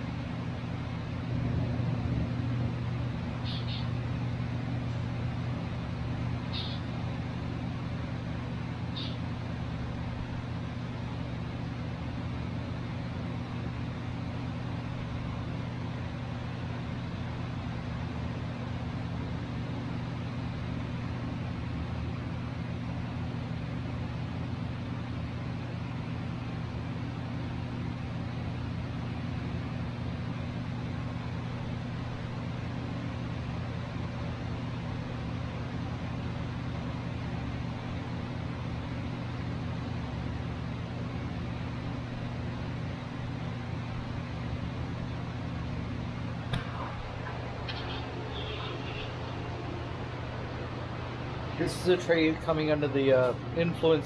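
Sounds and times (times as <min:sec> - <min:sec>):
low mechanical hum: 0:00.0 - 0:54.0
bird chirps: 0:03.4 - 0:04.0, 0:06.5 - 0:06.9, 0:08.9 - 0:09.2.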